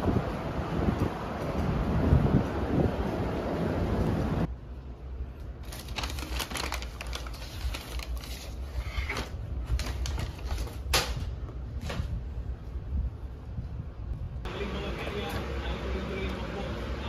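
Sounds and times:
paper bag crinkling: 5.6s - 10.9s.

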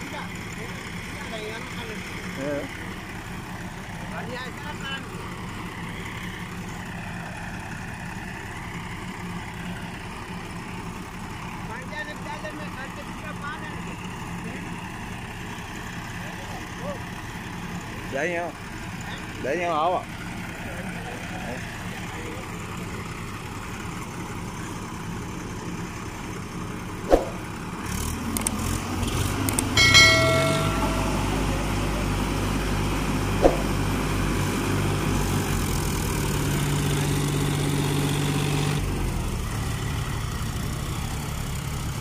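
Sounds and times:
diesel tractor engines: 0.0s - 42.0s
brief high-pitched tone: 29.8s - 32.1s
sharp metal clanks: 29.8s - 32.1s.

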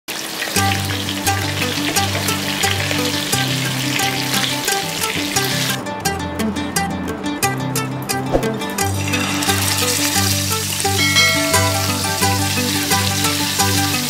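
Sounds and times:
fish sizzling in hot oil: 0.1s - 5.8s, 8.9s - 14.0s
instrumental background music: 0.6s - 14.0s.

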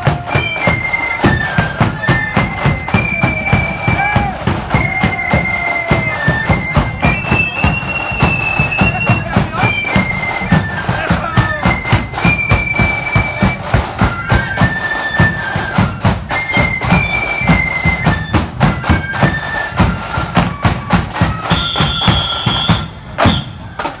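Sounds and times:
shrill fifes: 0.0s - 17.9s
marching drum beat: 0.0s - 24.0s.

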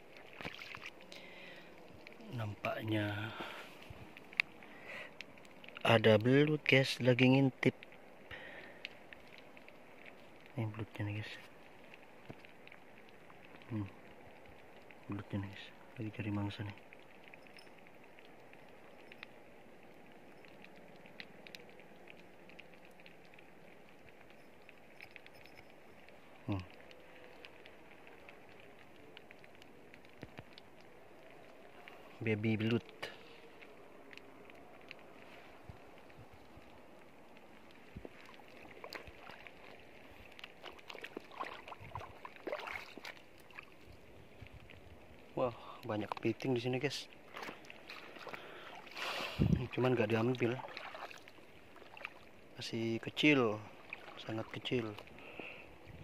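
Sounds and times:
footsteps wading through water: 0.0s - 2.1s, 37.4s - 44.1s, 47.1s - 52.6s, 53.6s - 55.4s
water hiss among rocks: 0.0s - 7.4s, 10.2s - 14.1s, 45.3s - 56.0s
faint crackling and ticking: 0.0s - 56.0s
water splashing and sloshing: 0.0s - 56.0s.

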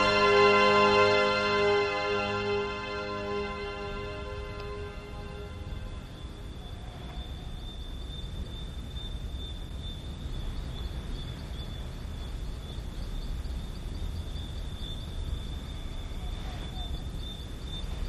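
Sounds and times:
steady high-pitched tone: 0.0s - 6.7s
faint repeating pulses: 0.0s - 8.1s
low rumble and hiss: 0.0s - 18.0s.

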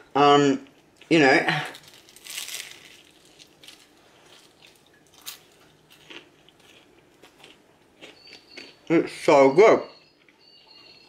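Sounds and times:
faint chewing: 0.6s - 8.9s.

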